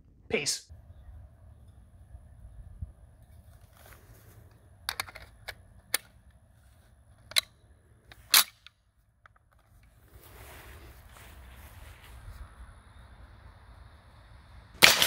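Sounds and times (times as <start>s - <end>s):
rifle metal clicks and clacks: 4.8s - 6.2s, 7.2s - 9.6s.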